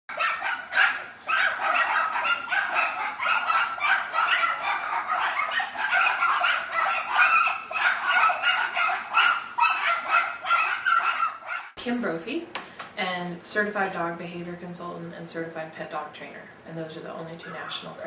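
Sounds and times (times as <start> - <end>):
dog barking and yipping: 0.1 - 11.8.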